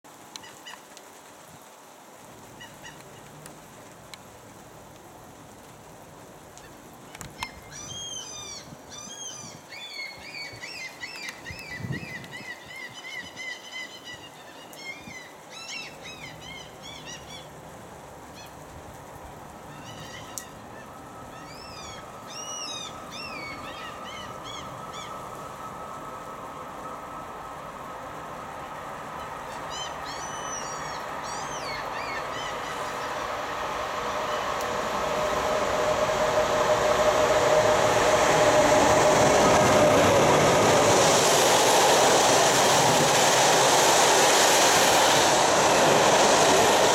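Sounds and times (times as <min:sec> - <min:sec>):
background hiss: 0:00.0 - 0:46.9
birds calling: 0:19.7 - 0:25.4, 0:29.2 - 0:33.4.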